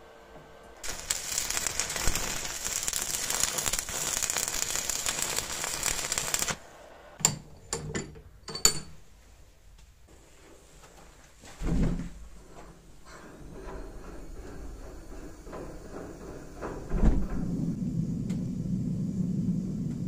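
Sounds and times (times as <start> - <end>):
arc welding crackling sizzle: 0.0 - 7.2.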